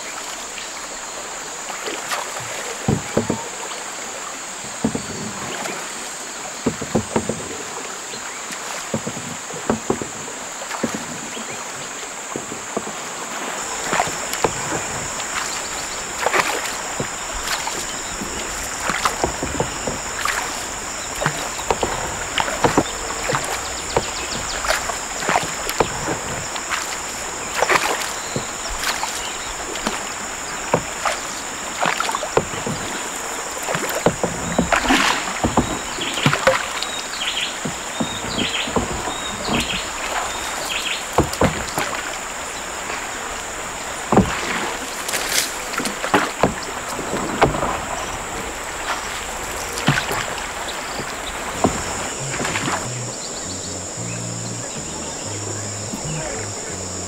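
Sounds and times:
water rushing along hull: 0.0 - 57.0
water splashing: 0.0 - 57.0
paddle knocking on canoe hull: 1.9 - 3.8, 4.6 - 57.0
high-pitched drone: 51.8 - 57.0.

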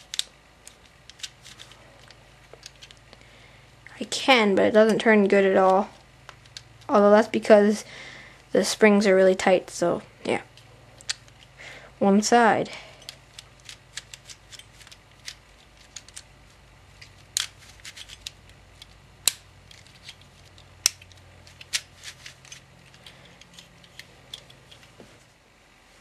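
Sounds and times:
plastic puzzle pieces clicking: 0.0 - 3.2, 5.6 - 6.8, 11.0 - 11.5, 13.0 - 16.3, 17.0 - 24.9
plastic pieces snapping: 0.0 - 3.3, 11.0 - 11.5, 13.0 - 25.0.

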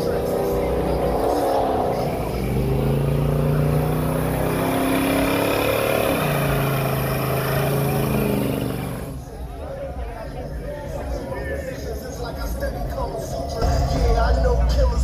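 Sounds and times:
car engine revving high: 0.0 - 9.2.

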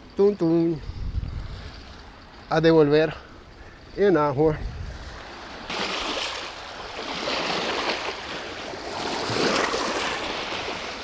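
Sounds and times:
river water splashing at bank: 5.1 - 11.0.

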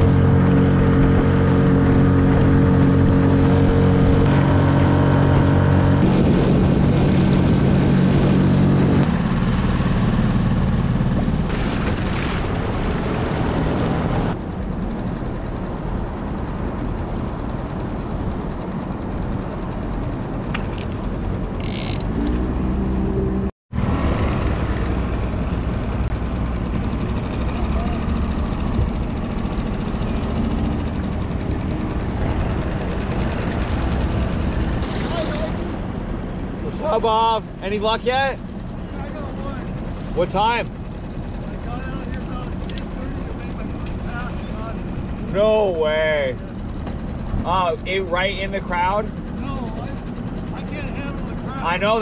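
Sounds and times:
outboard motor running: 0.0 - 52.0
water noise: 0.0 - 52.0
wind: 0.0 - 52.0.

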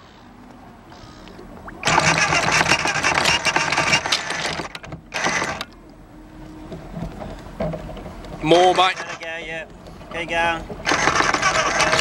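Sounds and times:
anchor chain rattling: 10.8 - 12.0.

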